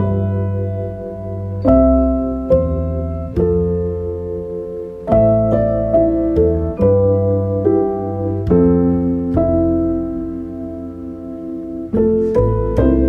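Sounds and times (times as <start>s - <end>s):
slow piano chords: 0.0s - 13.0s.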